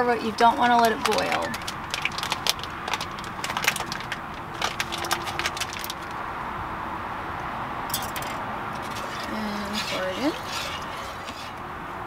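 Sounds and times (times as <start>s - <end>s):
kitchen utensils clicking: 7.9s - 11.6s.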